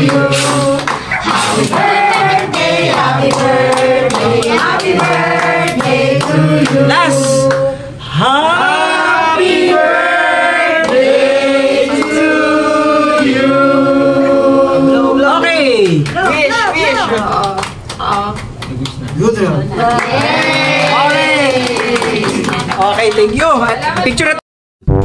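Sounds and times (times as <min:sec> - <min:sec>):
rhythmic clapping: 0:00.0 - 0:07.7, 0:10.8 - 0:13.3, 0:15.8 - 0:24.2
voices singing together: 0:00.0 - 0:15.5.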